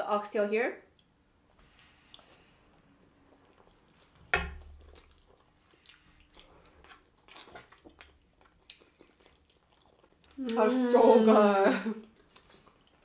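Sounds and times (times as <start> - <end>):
wet chewing: 0.9 - 10.7, 12.0 - 13.0
lip smacks: 4.6 - 10.6.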